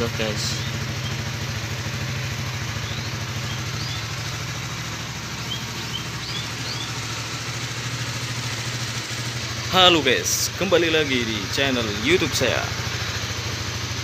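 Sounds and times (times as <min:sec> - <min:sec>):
motorcycle engine idling: 0:00.0 - 0:14.0
high bird chirps: 0:00.4 - 0:09.2.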